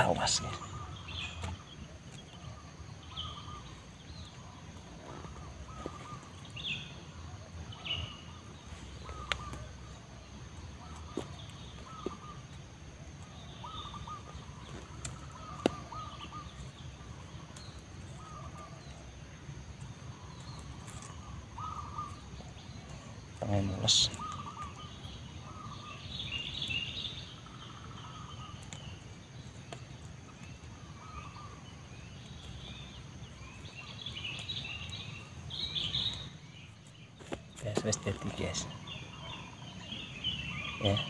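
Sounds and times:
birds chirping and calling: 0.0s - 41.0s.

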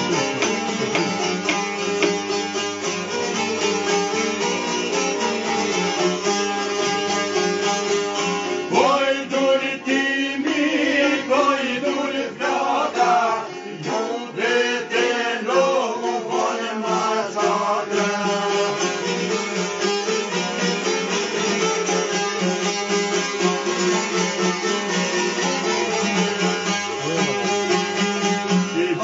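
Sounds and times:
plucked lutes: 0.0s - 29.0s
man singing: 28.6s - 29.0s.

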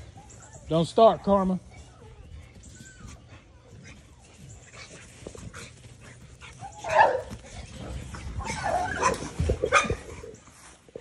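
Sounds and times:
dog barking and yelping: 6.5s - 7.5s, 8.4s - 10.4s.

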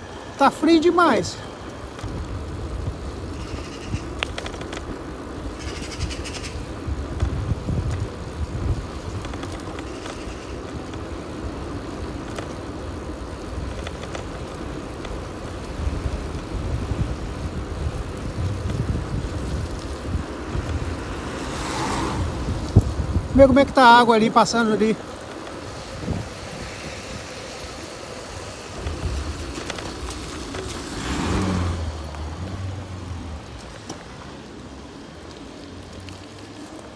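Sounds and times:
tyres hissing on wet tarmac: 0.0s - 36.9s
wind buffeting microphone: 1.6s - 24.1s, 24.9s - 33.8s
faint clicks: 3.9s - 5.0s.

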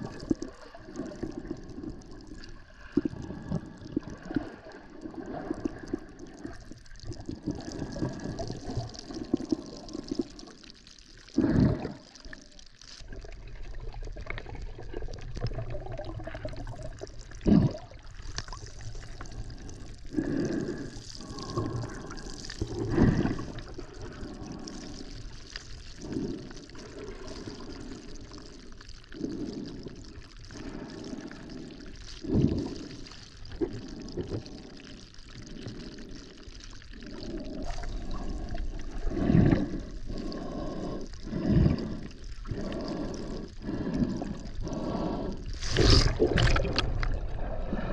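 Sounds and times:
underwater sloshing water: 0.0s - 28.2s, 36.9s - 47.9s.

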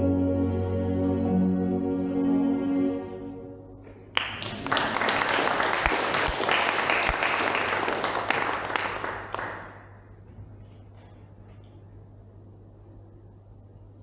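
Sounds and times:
audience applauding: 4.1s - 10.0s.

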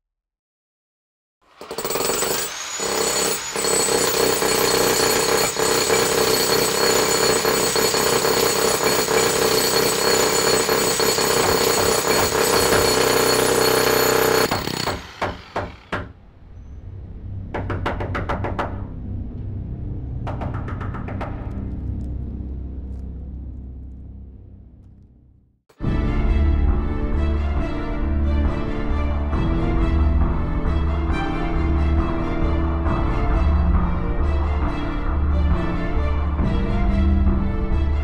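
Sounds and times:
jackhammer pounding: 1.4s - 16.2s.

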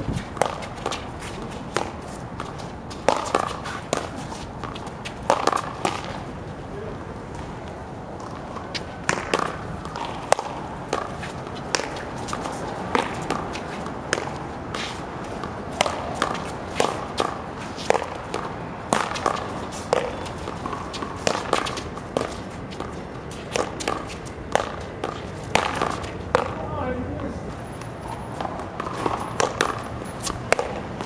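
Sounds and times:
ball bouncing off concrete wall: 1.8s - 6.2s, 8.2s - 12.1s, 12.9s - 14.4s, 15.4s - 27.4s, 28.4s - 31.0s
paddles striking ball: 9.0s - 14.4s, 15.4s - 26.6s, 28.4s - 31.0s.

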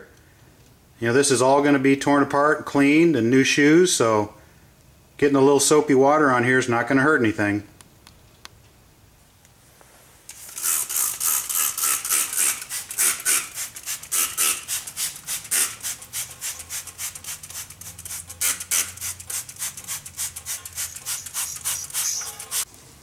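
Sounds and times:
spray bottle squirting: 10.3s - 22.7s.

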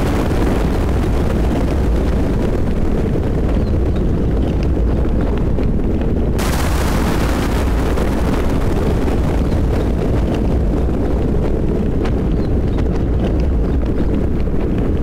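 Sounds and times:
rolling thunder: 0.0s - 5.6s, 6.2s - 13.9s
rain: 0.0s - 15.0s
crackling hiss: 6.4s - 12.3s.

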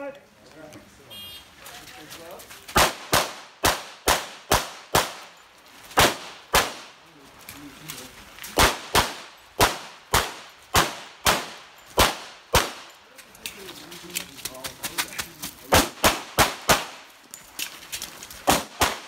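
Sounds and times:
pistol shots in rapid pairs: 2.8s - 5.4s, 6.0s - 7.0s, 8.6s - 12.9s, 15.7s - 17.1s, 18.4s - 19.0s.

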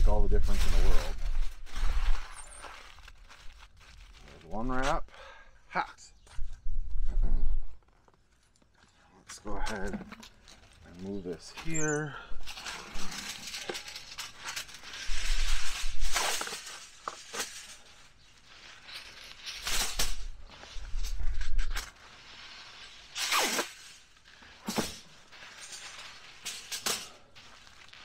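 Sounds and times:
aluminium foil crinkling: 0.2s - 4.6s, 10.2s - 11.5s, 12.4s - 28.0s.

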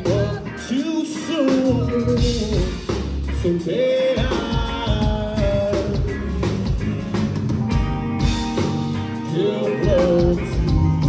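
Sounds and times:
person singing: 0.0s - 6.8s, 9.1s - 11.0s
bass guitar: 0.0s - 11.0s
drum kit: 0.0s - 11.0s
electric guitars: 0.0s - 11.0s.

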